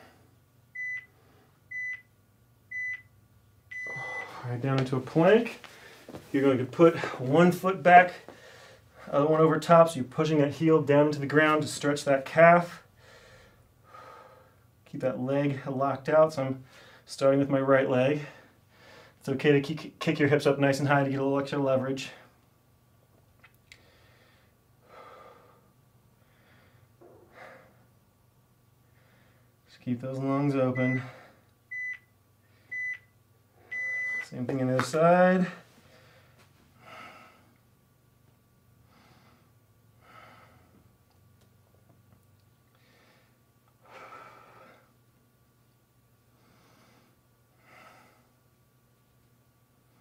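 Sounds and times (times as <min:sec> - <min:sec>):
faint low hum: 0:00.0 - 0:50.0
soft breaths: 0:03.7 - 0:04.6, 0:05.4 - 0:07.4, 0:08.1 - 0:09.3.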